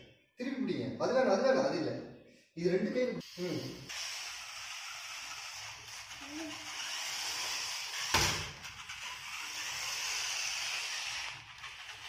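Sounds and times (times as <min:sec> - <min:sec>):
small electric motors whirring: 0:03.2 - 0:12.0.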